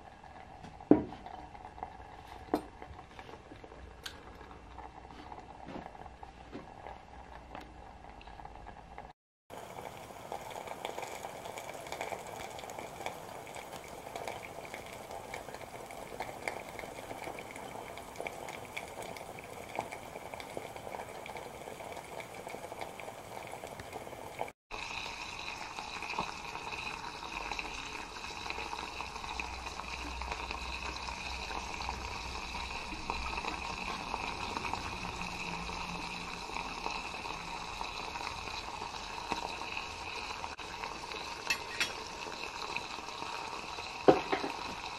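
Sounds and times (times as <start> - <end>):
water boiling in covered pan: 0.0 - 44.9.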